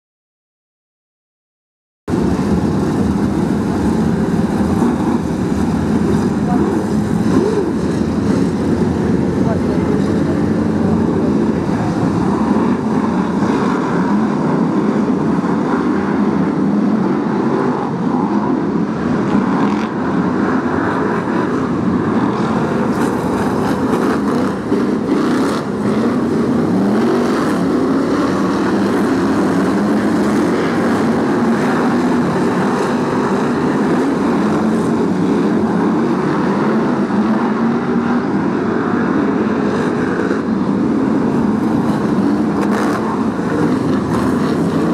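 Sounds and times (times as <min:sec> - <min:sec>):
racing car engines roaring: 0:02.1 - 0:44.9.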